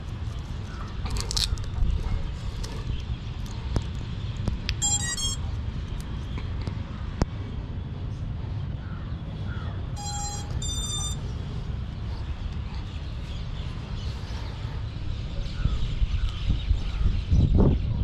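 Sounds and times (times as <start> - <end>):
short electronic beeps: 4.8 - 5.5, 10.0 - 11.3.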